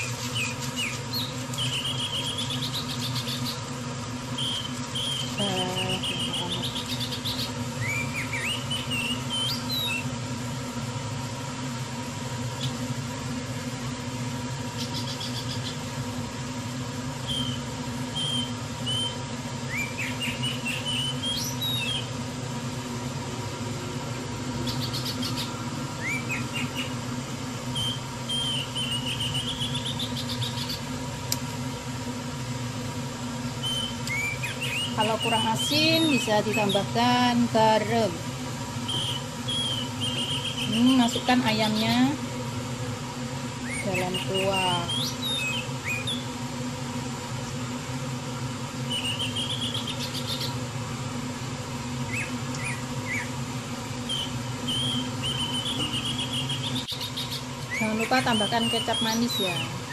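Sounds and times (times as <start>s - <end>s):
small birds chirping and trilling: 0.0s - 10.2s, 12.4s - 13.0s, 13.6s - 16.1s, 17.1s - 22.2s, 24.4s - 27.1s, 27.7s - 31.0s, 33.6s - 38.2s, 38.8s - 42.2s, 43.5s - 46.4s, 48.8s - 50.7s, 52.0s - 59.9s
steady low hum: 0.0s - 59.9s.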